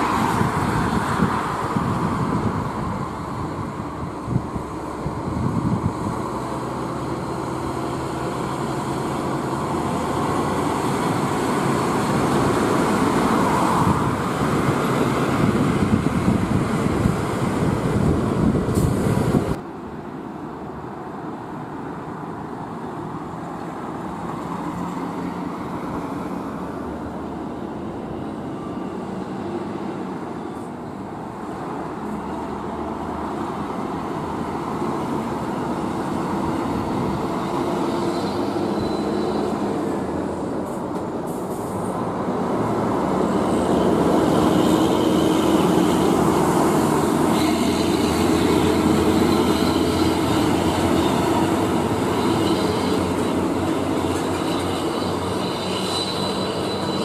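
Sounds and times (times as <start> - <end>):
diesel truck engine: 0.0 - 19.6.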